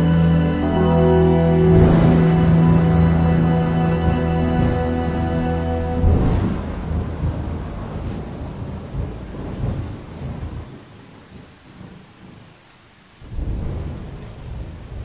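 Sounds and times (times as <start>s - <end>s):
rolling thunder: 0.0s - 12.4s, 13.2s - 15.0s
rain: 0.0s - 15.0s.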